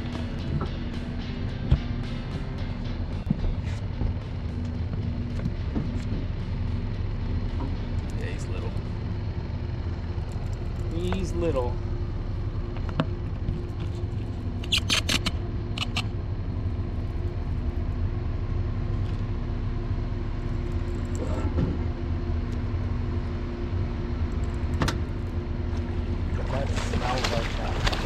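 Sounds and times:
sharp clicks: 14.6 - 16.1
fish thrashing in water: 26.2 - 28.0.

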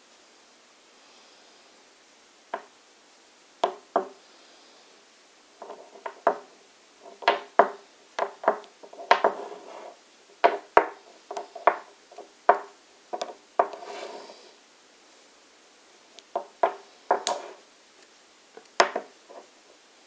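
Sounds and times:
metal scraping on wood: 5.6 - 14.5, 16.4 - 17.6
metal tube knocking on wood: 7.1 - 9.4, 10.4 - 11.9.

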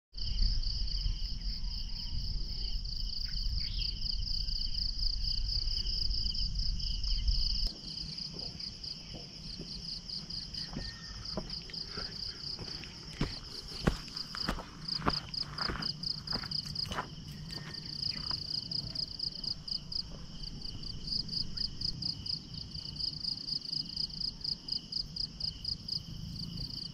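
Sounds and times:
insects chirping: 0.2 - 26.9
footsteps on gravel: 7.7 - 18.6.

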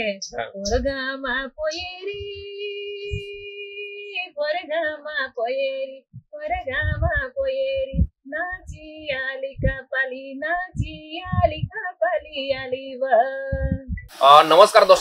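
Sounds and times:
dull low thumps: 0.0 - 3.5, 6.1 - 14.1
woman singing folk song: 0.0 - 14.1.

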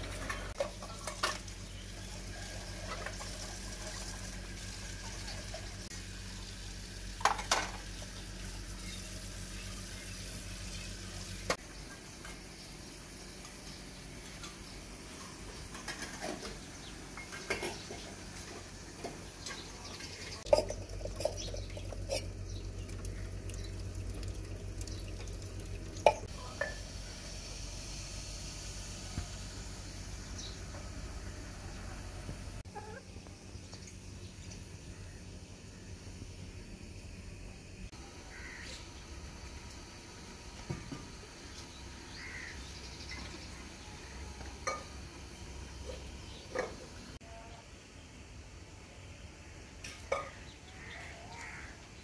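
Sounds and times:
steel dishes clinking: 19.5 - 22.4.

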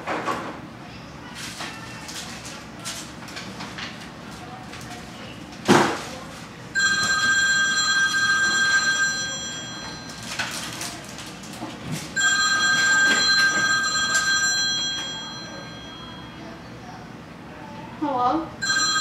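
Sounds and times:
old-style telephone ringtone: 6.8 - 10.9, 12.2 - 16.4, 18.6 - 19.0.

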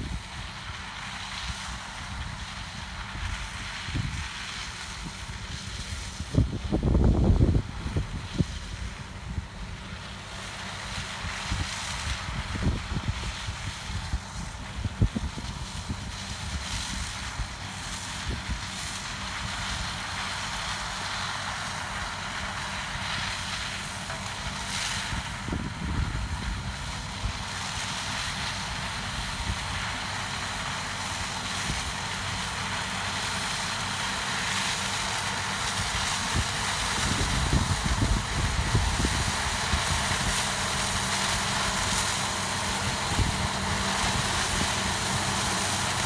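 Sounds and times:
distant harvester drone: 0.0 - 46.0
wind buffeting microphone: 5.0 - 9.8, 11.3 - 17.5, 25.0 - 27.5, 35.7 - 41.8, 42.4 - 46.0.

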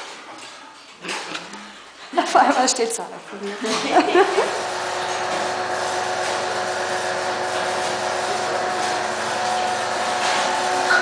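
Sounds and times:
steady mechanical hum: 3.6 - 11.0.

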